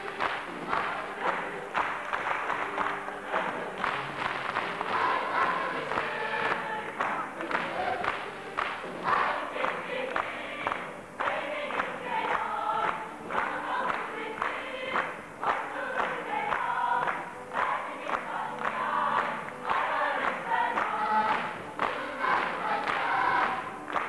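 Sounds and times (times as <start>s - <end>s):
young men and women singing in chorus: 0.4s - 24.0s.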